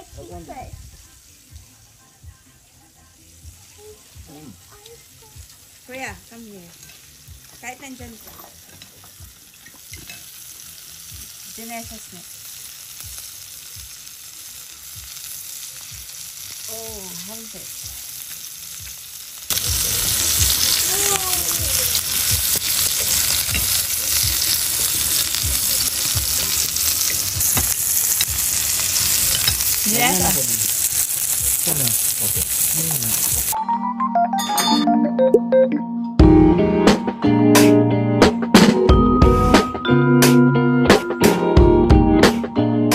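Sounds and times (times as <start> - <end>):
steak sizzling in a pan: 0.0 - 33.6.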